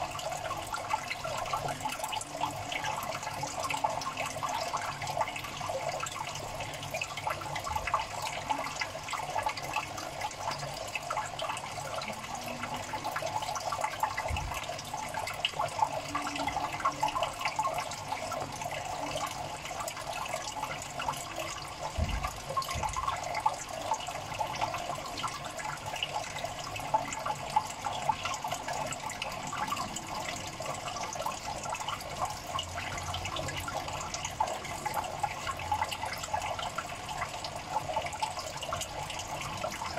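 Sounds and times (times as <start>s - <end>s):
water trickling and bubbling: 0.0s - 39.9s.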